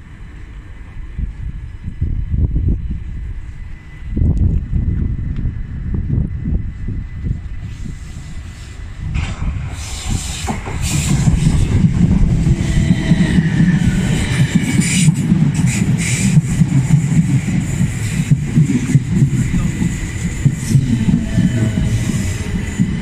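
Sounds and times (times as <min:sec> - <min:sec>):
train wheels rumbling and knocking: 0:00.0 - 0:23.0.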